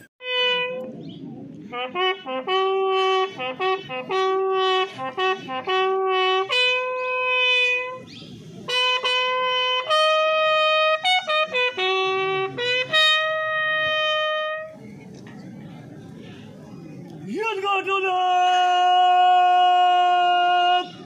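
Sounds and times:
bugle call: 0:01.7 - 0:08.1, 0:08.7 - 0:14.7.

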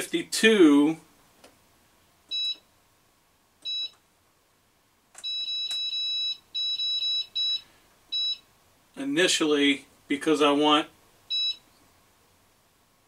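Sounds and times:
control panel beeping: 0:03.6 - 0:04.0.

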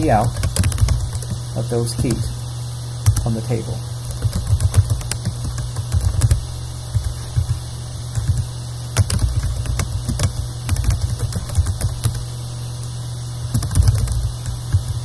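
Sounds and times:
steady low hum: 0:00.0 - 0:15.0
keyboard keystroke clicks: 0:00.3 - 0:01.4, 0:08.2 - 0:12.2.

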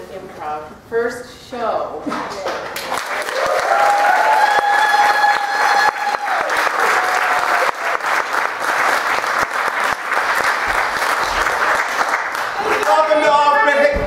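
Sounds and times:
audience applauding: 0:02.8 - 0:13.8.

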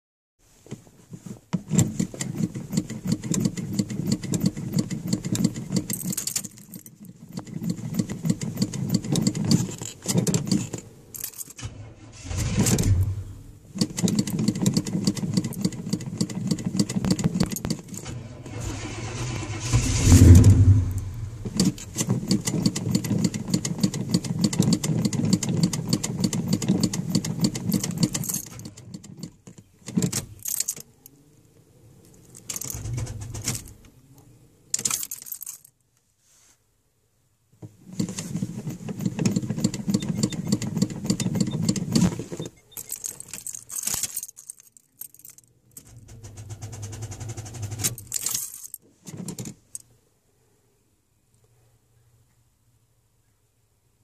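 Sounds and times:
engine briefly firing: 0:11.6 - 0:13.5, 0:18.1 - 0:21.8, 0:32.7 - 0:33.6
engine cranking on starter: 0:11.6 - 0:16.8, 0:18.0 - 0:27.7, 0:32.5 - 0:33.8, 0:45.8 - 0:48.3.

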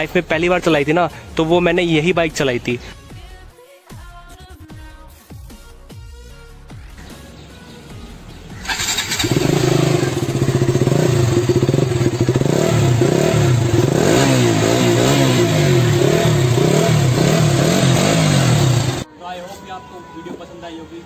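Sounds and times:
motorcycle engine starting and revving: 0:08.5 - 0:19.1.

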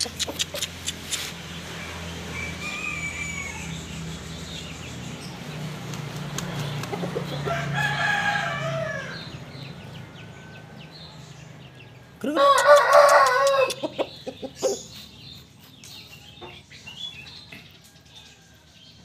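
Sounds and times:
rooster crowing: 0:02.2 - 0:04.0, 0:07.4 - 0:09.4, 0:12.2 - 0:13.8.

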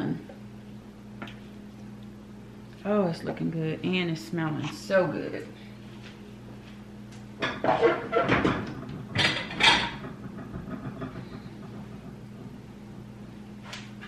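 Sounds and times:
low steady hum: 0:00.0 - 0:14.0
ceramic dishes clattering: 0:07.4 - 0:10.1.

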